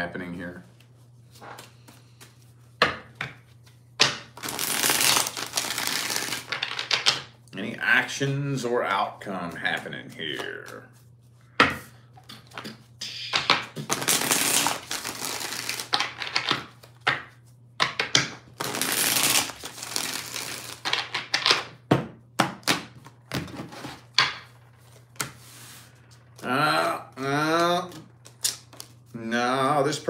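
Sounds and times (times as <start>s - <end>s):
cards being shuffled: 3.4s - 7.2s, 9.5s - 11.4s, 12.2s - 21.7s, 22.6s - 26.5s, 27.4s - 29.2s.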